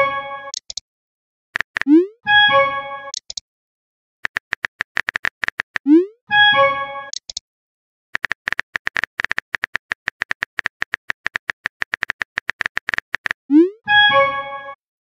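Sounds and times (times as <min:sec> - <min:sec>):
typing blips: 0:01.6 - 0:02.1, 0:04.2 - 0:06.1, 0:07.1 - 0:07.4, 0:08.2 - 0:13.8.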